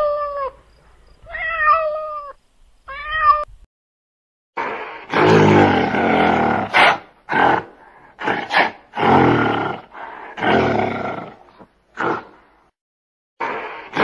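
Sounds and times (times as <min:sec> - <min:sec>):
gorilla roaring: 0:04.6 - 0:12.4, 0:13.4 - 0:14.0.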